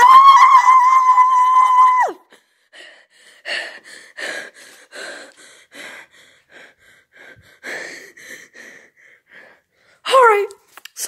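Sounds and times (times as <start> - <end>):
boy gasping breaths: 2.3 - 10.1.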